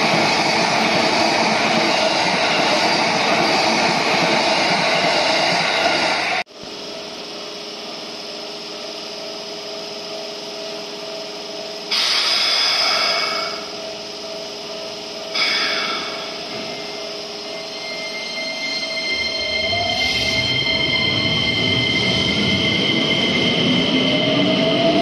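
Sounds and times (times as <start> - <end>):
electric train equipment humming: 0.0 - 25.0
train motor rising whine: 15.3 - 25.0.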